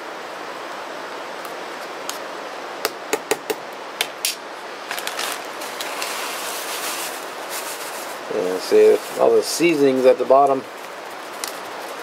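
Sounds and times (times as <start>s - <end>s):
dry mix poured rustling: 4.8s - 12.0s.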